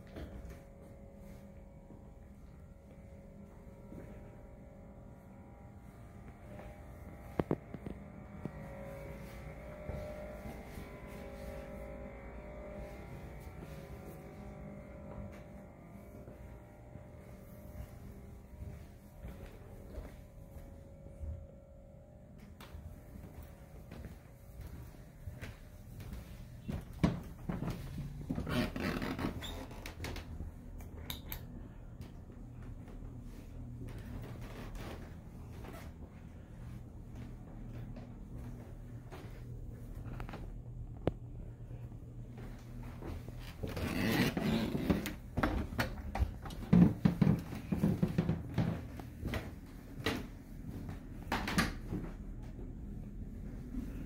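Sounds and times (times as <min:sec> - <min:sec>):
footsteps on hardwood floor: 0:07.3 - 0:16.5, 0:17.2 - 0:21.4, 0:22.4 - 0:30.5, 0:32.1 - 0:41.2, 0:42.3 - 0:54.0.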